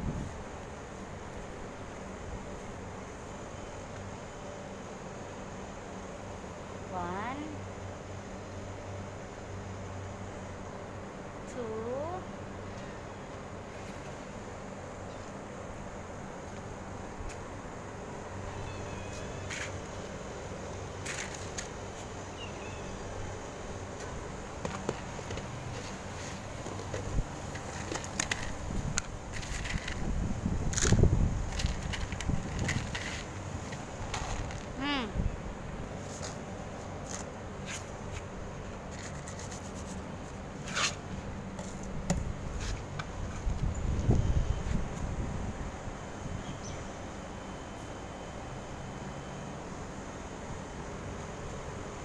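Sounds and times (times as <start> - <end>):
steady low hum: 0.0 - 52.0
kibble rattling on plastic: 30.8 - 34.7.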